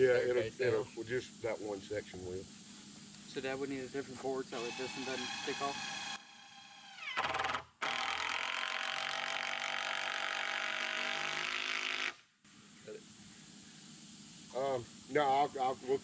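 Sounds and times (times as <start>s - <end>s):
cordless drill driving screw: 4.6s - 12.1s.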